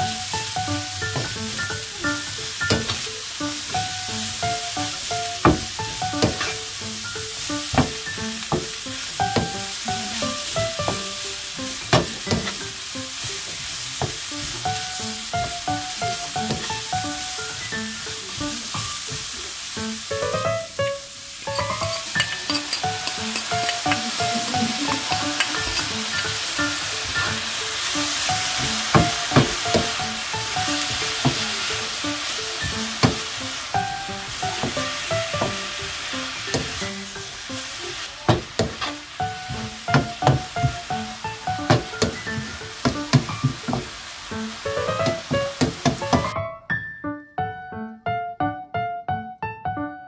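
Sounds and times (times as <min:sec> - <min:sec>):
food sizzling in frying pan: 0:00.0 - 0:46.4
spatula scraping and knocking pan: 0:04.8 - 0:06.8, 0:07.4 - 0:14.3, 0:15.4 - 0:17.6, 0:21.5 - 0:27.6, 0:28.2 - 0:32.0, 0:32.6 - 0:36.9, 0:38.3 - 0:40.9, 0:41.6 - 0:44.0, 0:44.8 - 0:46.4.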